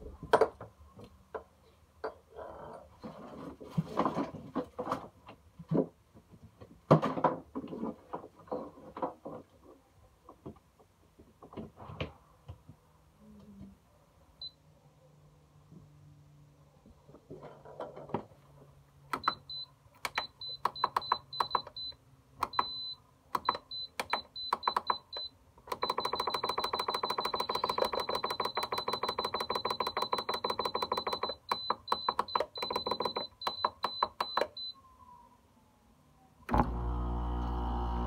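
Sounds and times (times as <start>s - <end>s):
high-pitched beep: 20.2s - 34.8s.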